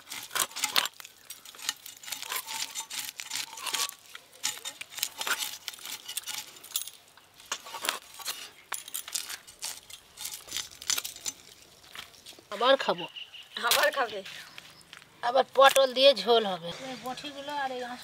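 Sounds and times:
blade scraping and clicking on fish: 0:00.0 - 0:06.8.

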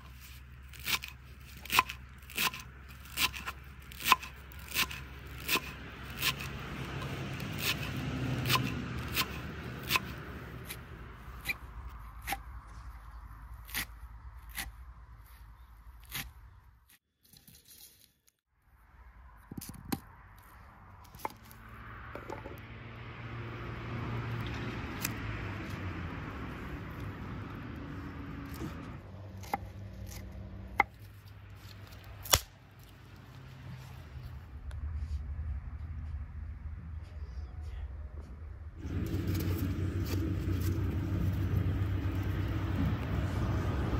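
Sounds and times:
onion skins rustling: 0:38.8 - 0:43.8.

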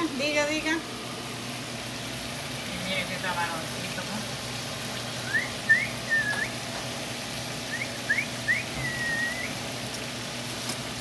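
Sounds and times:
shrimp sizzling on griddle: 0:00.0 - 0:11.0
person whistling: 0:05.2 - 0:06.5, 0:07.7 - 0:09.6.

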